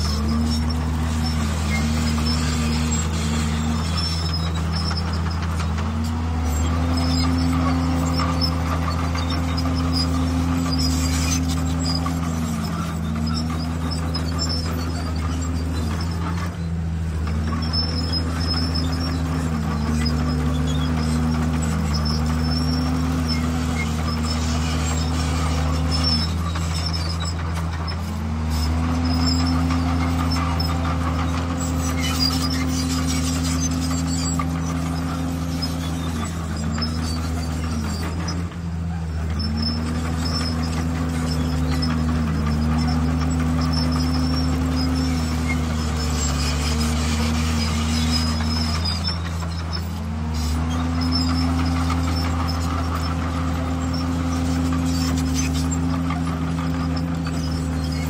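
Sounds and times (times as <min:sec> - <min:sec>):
bulldozer diesel engine running hard: 0:00.0 - 0:58.0.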